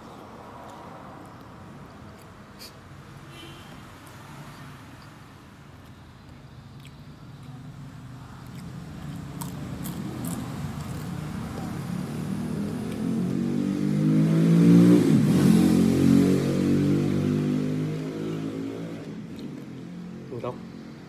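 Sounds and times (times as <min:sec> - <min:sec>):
vehicle engine driving past: 0:09.7 - 0:20.6.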